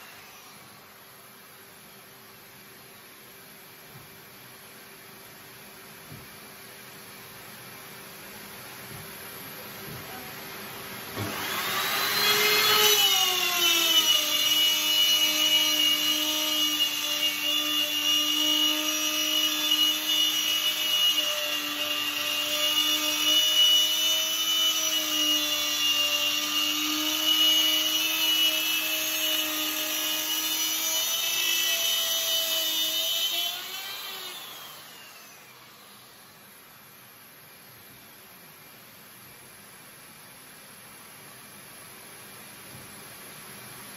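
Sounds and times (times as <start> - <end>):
electric router cutting wood: 0.0 - 0.8, 11.2 - 36.3.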